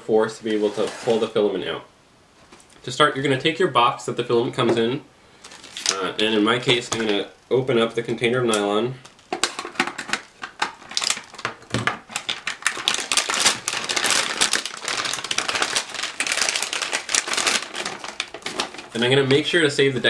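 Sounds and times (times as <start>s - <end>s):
plastic bag crinkling: 5.4s - 7.2s, 9.0s - 20.0s.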